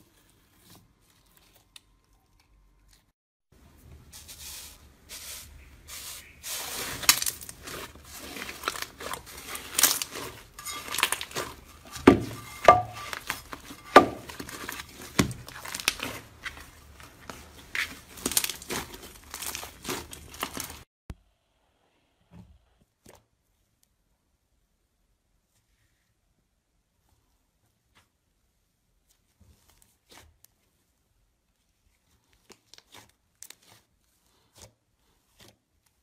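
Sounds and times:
slime crackling and popping: 7.0 - 11.7, 13.1 - 20.8.

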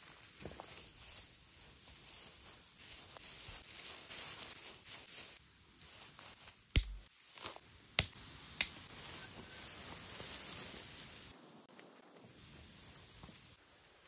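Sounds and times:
soft rustling: 0.0 - 6.6
sharp snaps: 6.7 - 7.1, 8.0 - 8.9.

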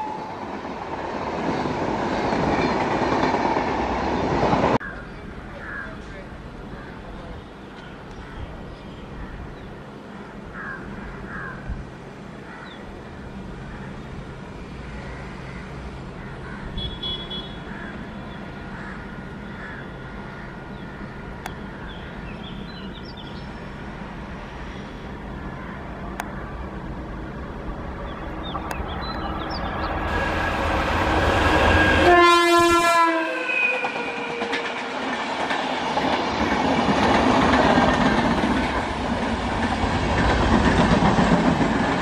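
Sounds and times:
train rumble: 0.0 - 42.0
birds calling: 4.2 - 11.7, 12.5 - 23.6, 27.9 - 30.2.

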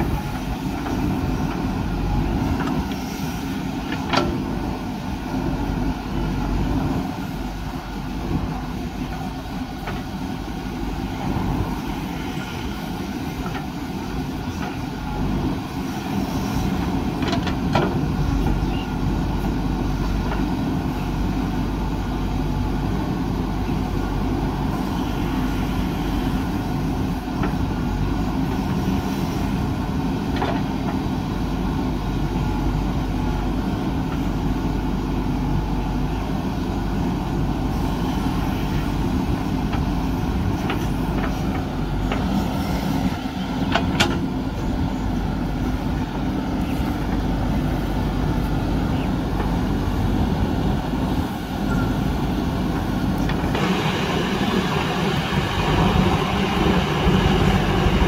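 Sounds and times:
diesel engine under hydraulic load: 0.0 - 58.0
backhoe digging soil: 36.9 - 58.0.

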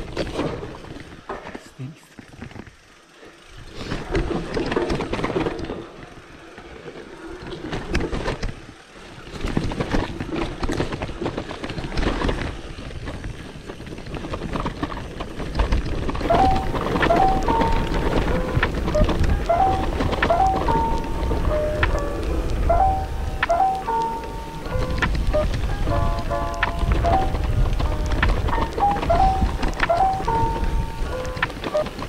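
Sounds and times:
bike tyres on dirt: 0.0 - 1.4, 2.1 - 32.0
bike knocking and rattling: 0.0 - 1.6, 2.2 - 32.0
music: 16.2 - 31.9.

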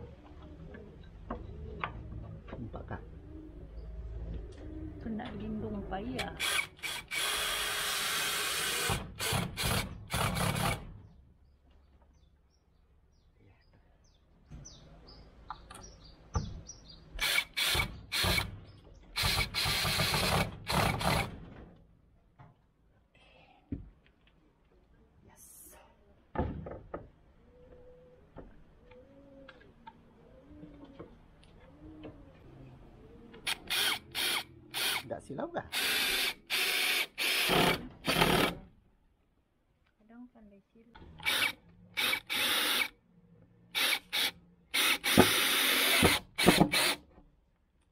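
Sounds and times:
cordless drill driving a screw: 6.4 - 10.8, 17.2 - 18.5, 19.2 - 21.3, 33.5 - 35.0, 35.7 - 38.6, 41.2 - 42.9, 43.8 - 47.0.

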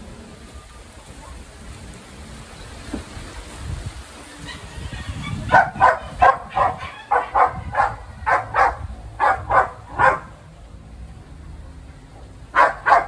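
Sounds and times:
dog barking: 5.0 - 10.4, 12.5 - 13.0.

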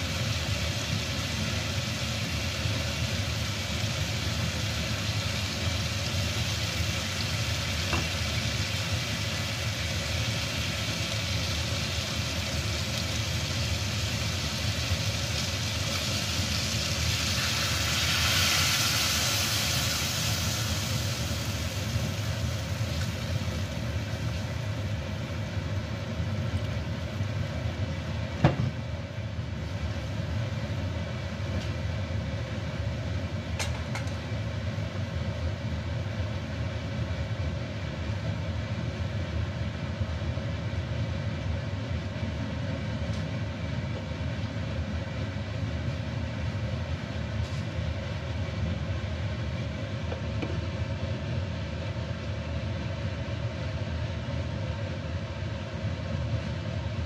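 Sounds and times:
meat sizzling in a wok: 0.0 - 40.4
gas hob rumble: 0.0 - 57.0.

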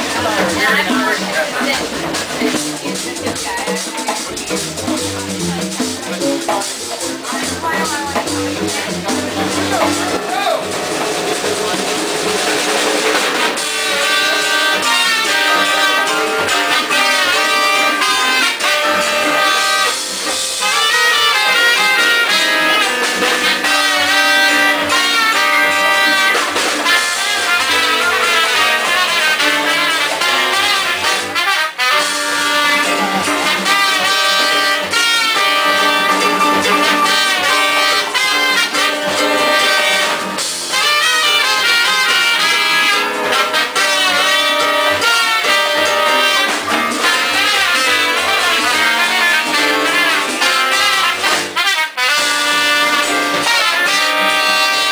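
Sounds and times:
percussion: 0.0 - 54.9
piano: 0.0 - 54.9
trumpets playing melody: 13.3 - 54.9.

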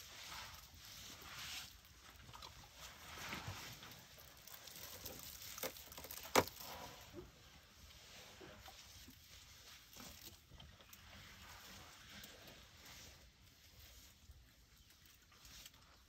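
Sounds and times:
elephants shuffling in sand and brush: 0.0 - 5.2, 6.6 - 16.0.

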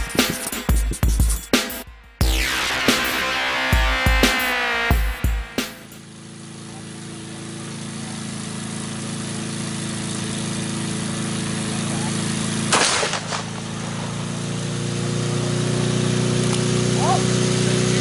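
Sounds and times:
lawn mower engine running: 0.0 - 18.0
revolver shot: 12.6 - 14.2.

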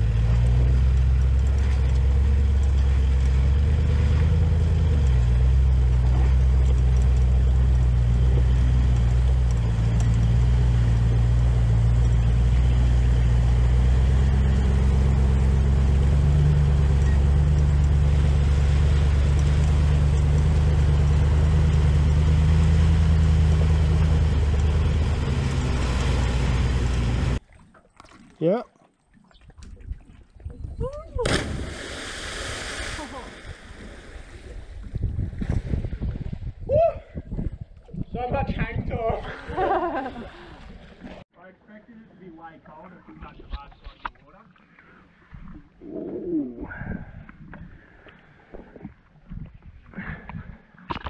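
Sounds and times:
vehicle engine running: 0.0 - 27.4.

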